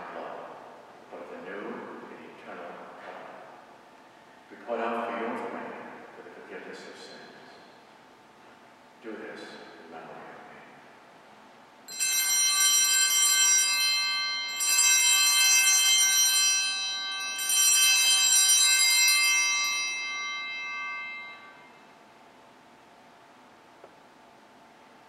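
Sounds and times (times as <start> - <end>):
altar bells ringing: 11.9 - 22.0.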